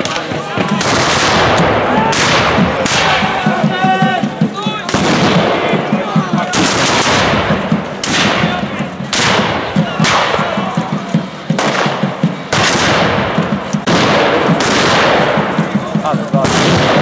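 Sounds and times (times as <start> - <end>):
musket shots echoing: 0.0 - 17.0.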